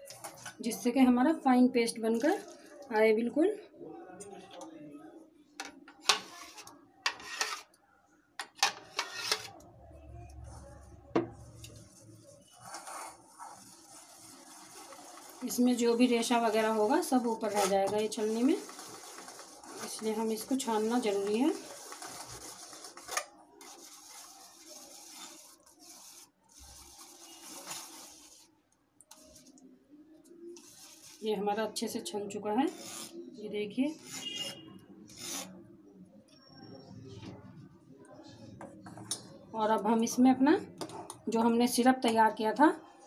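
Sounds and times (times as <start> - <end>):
spoon scraping through strainer: 6.1 - 7.7, 11.6 - 28.4, 32.7 - 33.2, 33.9 - 35.6.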